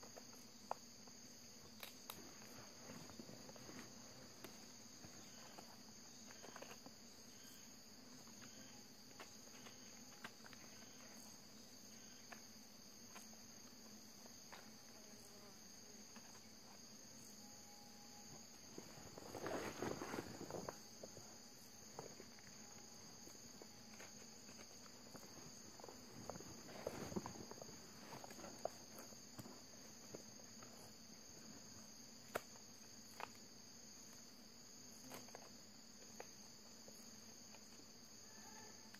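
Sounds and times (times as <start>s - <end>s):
insects chirring: 0.0s - 38.9s
rustling in dry leaves: 18.9s - 20.8s.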